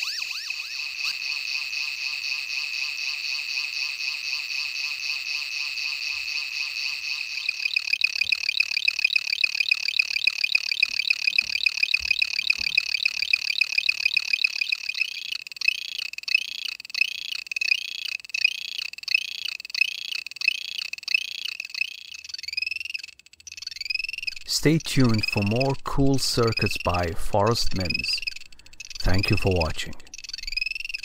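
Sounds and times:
piezo buzzer chopped tone: 0.0s - 31.0s.

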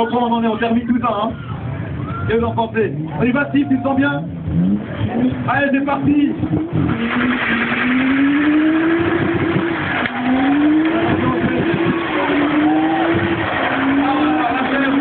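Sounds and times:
car engine revving high: 4.2s - 15.0s
spinning tyres hissing: 6.3s - 15.0s.

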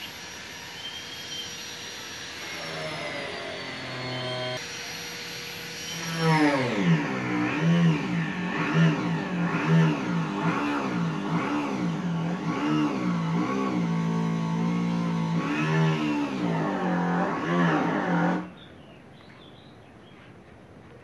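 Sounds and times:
motor engine revving: 2.4s - 4.6s, 6.0s - 18.6s.

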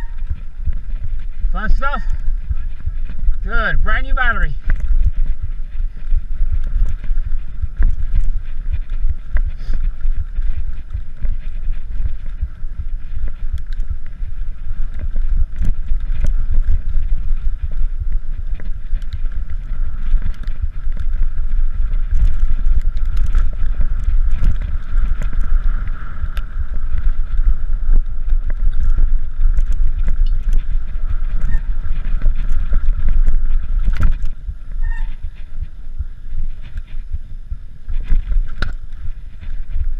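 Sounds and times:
bike rattling and knocking: 0.0s - 39.9s
wind buffeting microphone: 0.0s - 39.9s.

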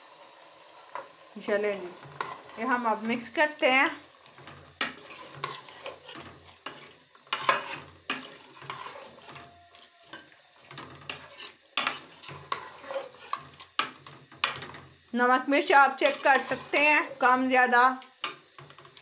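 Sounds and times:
sizzling: 0.0s - 19.0s
metal spoon scraping a pot: 0.7s - 3.6s, 4.2s - 14.8s, 15.9s - 17.2s.

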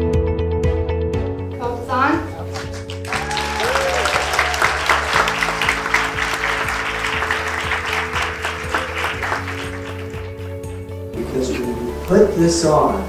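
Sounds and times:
background music: 0.0s - 13.0s
audience applauding: 2.4s - 10.6s.

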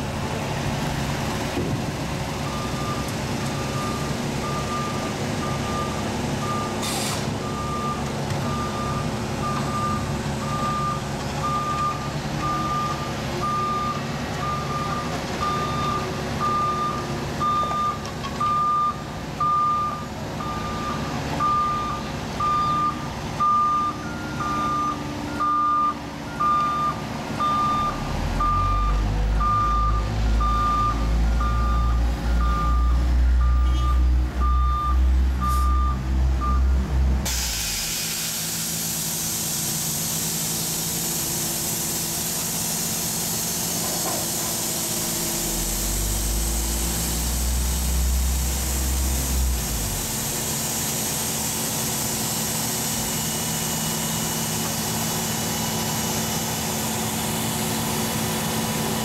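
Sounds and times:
deep engine rumble: 0.0s - 39.0s, 43.4s - 51.6s
diesel engines running: 0.0s - 59.0s.

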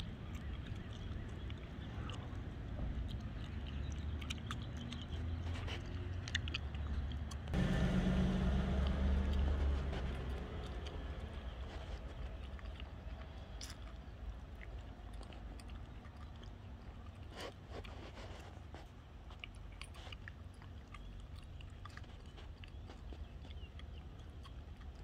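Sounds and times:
low street rumble: 0.0s - 25.0s
light clicks and scrapes: 0.2s - 7.6s, 8.8s - 16.1s, 16.8s - 23.7s.

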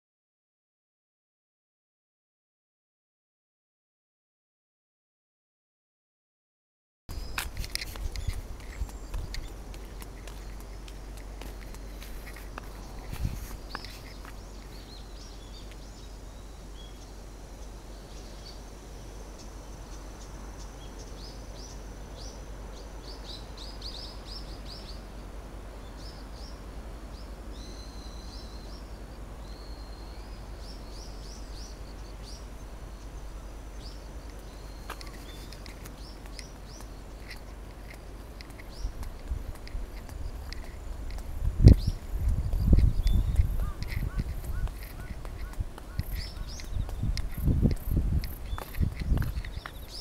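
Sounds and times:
faint steady hiss: 7.1s - 50.0s
birds chirping and whistling: 41.6s - 47.6s.

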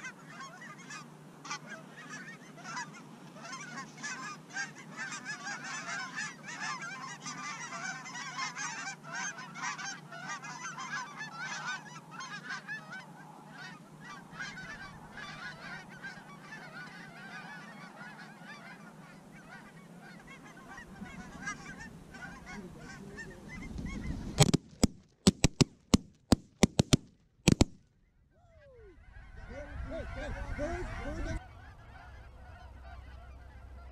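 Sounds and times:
geese honking: 0.0s - 33.9s.

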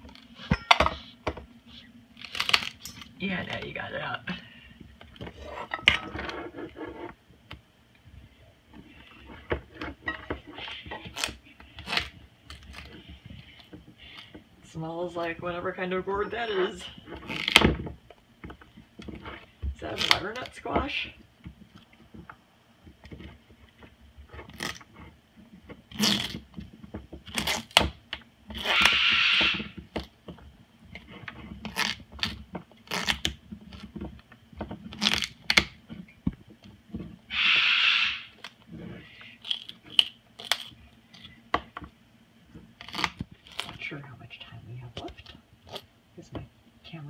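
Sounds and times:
loud rasping noises: 28.6s - 29.8s, 37.3s - 40.7s
bird beak crunching squash: 37.3s - 41.4s.

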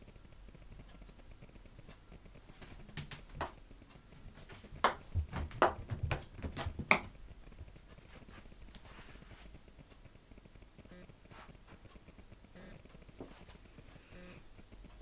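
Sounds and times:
ping pong ball bouncing: 2.6s - 3.6s, 4.4s - 7.2s
dull thumps: 4.4s - 7.2s
sharp knocks: 4.8s - 7.1s.

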